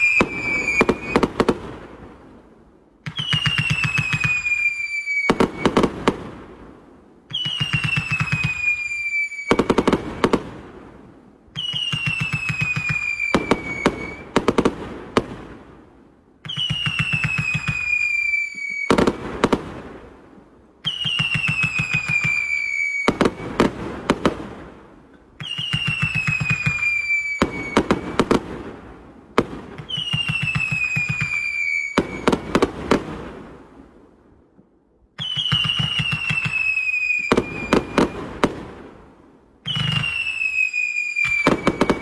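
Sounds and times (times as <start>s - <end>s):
firework falling whistle: 0.0s - 1.5s, 3.0s - 5.9s, 7.3s - 10.4s, 11.6s - 14.4s, 16.4s - 19.2s, 20.8s - 23.8s, 25.4s - 28.4s, 29.8s - 32.8s, 35.2s - 38.5s, 39.6s - 42.0s
firework bangs: 0.0s - 2.3s, 3.0s - 6.7s, 7.3s - 11.0s, 11.6s - 15.8s, 16.4s - 20.2s, 20.8s - 33.8s, 35.2s - 39.1s, 39.7s - 42.0s.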